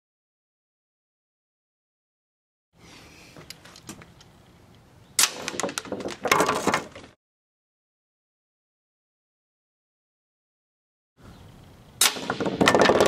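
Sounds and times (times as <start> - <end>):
air rifle sharp pop: 12.0 - 12.6
bbs clattering: 12.0 - 13.0.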